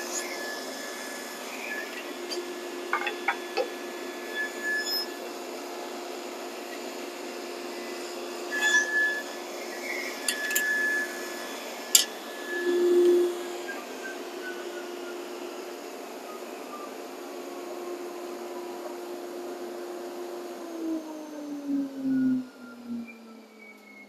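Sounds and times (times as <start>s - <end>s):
table saw humming: 0.0s - 21.0s.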